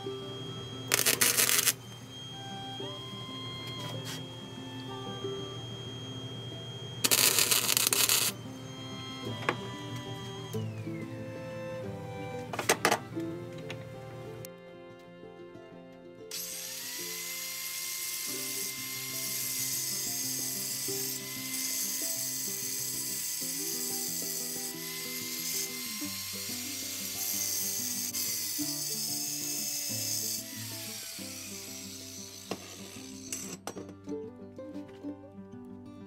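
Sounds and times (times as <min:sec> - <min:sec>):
steady high whine: 0:00.0 - 0:14.5
background music: 0:07.0 - 0:19.8.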